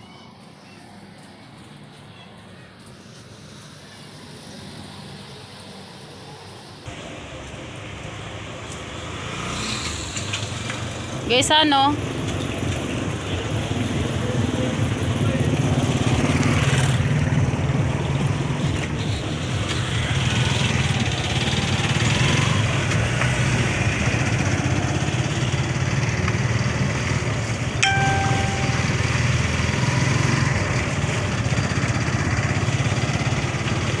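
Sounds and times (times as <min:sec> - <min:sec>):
short high beep: 0:27.8 - 0:29.3.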